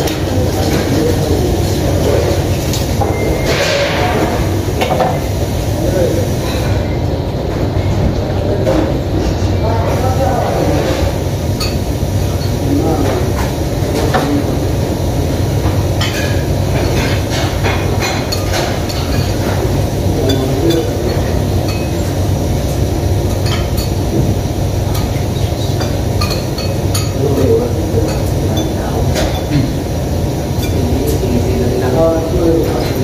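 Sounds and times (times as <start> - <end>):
cutlery and dishes clinking: 2.1 - 4.2, 16.0 - 19.6, 24.9 - 29.7.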